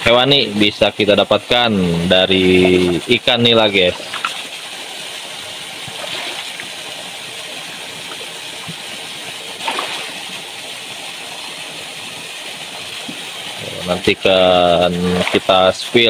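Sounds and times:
churning water rushing: 0:00.0 - 0:16.0
fish splashing at surface: 0:03.9 - 0:04.8, 0:05.8 - 0:10.9.

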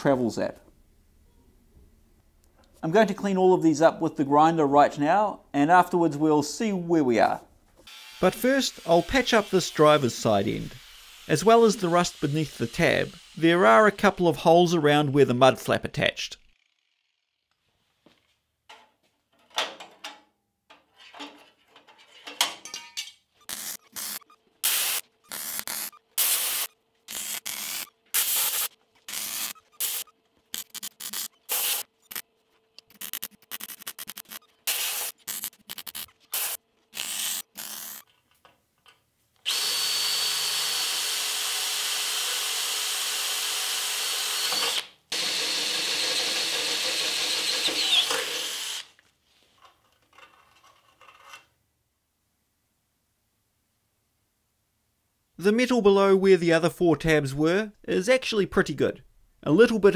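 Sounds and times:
angle grinder whining: 0:07.8 - 0:13.9, 0:23.4 - 0:32.2, 0:39.4 - 0:49.0
welder bursts: 0:07.9 - 0:14.2, 0:23.4 - 0:32.2, 0:32.9 - 0:38.1, 0:39.4 - 0:49.0.

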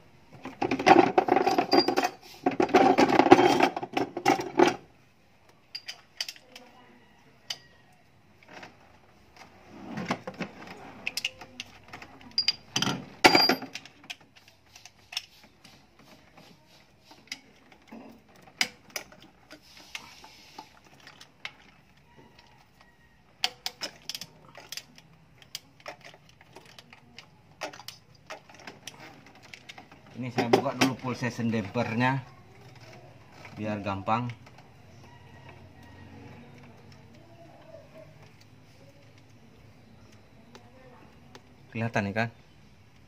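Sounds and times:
metal wrench clinking on bolts: 0:01.3 - 0:02.2, 0:05.7 - 0:06.6, 0:12.2 - 0:14.2.

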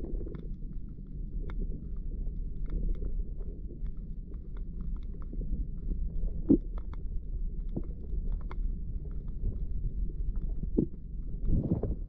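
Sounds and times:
faint clicks and taps: 0:00.0 - 0:11.6
underwater rumble of water: 0:00.0 - 0:12.0.

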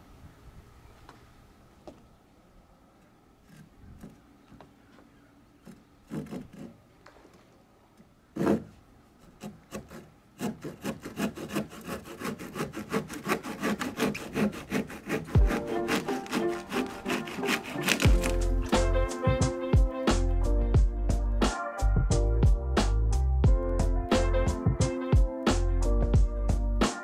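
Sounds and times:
hand saw cutting wood: 0:05.6 - 0:06.8, 0:08.4 - 0:19.0.

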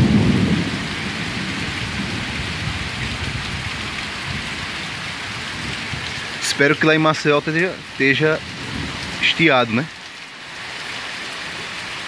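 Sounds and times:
low rumble of thunder: 0:00.0 - 0:06.1, 0:08.4 - 0:09.2
heavy rain pouring: 0:00.0 - 0:12.0.

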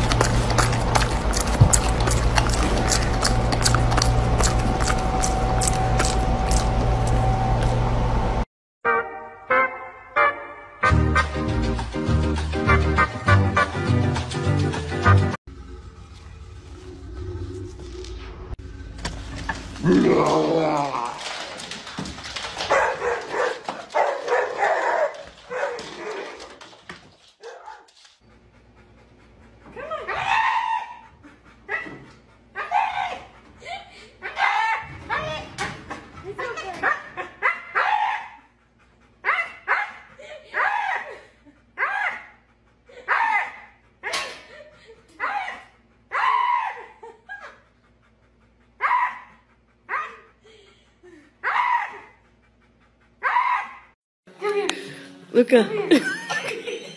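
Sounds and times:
dog barking: 0:22.7 - 0:26.4, 0:27.4 - 0:27.9, 0:36.8 - 0:38.4, 0:39.2 - 0:41.1, 0:41.8 - 0:42.4, 0:43.0 - 0:44.2, 0:45.2 - 0:47.0, 0:48.8 - 0:50.3, 0:51.4 - 0:52.2, 0:53.2 - 0:53.9
husky yowling: 0:30.1 - 0:31.1, 0:32.6 - 0:33.3, 0:37.4 - 0:38.4, 0:45.2 - 0:47.2, 0:48.8 - 0:49.3, 0:51.4 - 0:52.2, 0:53.2 - 0:54.0.

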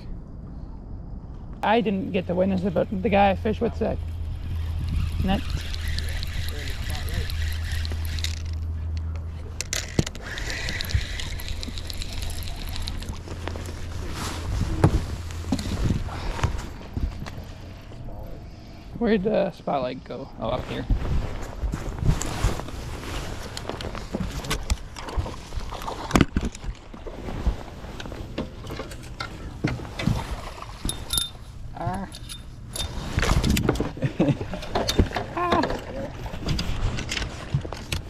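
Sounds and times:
steady low rumble: 0:00.0 - 0:25.8
low hum: 0:00.0 - 0:38.0
gear clicks and knocks: 0:04.7 - 0:13.9.

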